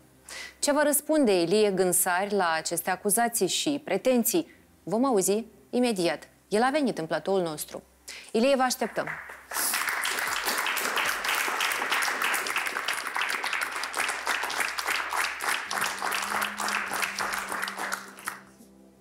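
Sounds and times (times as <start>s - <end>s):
studio audience applauding: 8.8s - 18.6s.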